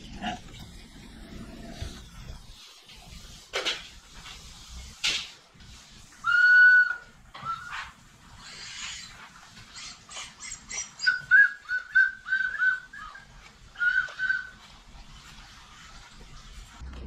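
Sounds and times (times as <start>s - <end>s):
dog whining: 9.7s - 14.6s.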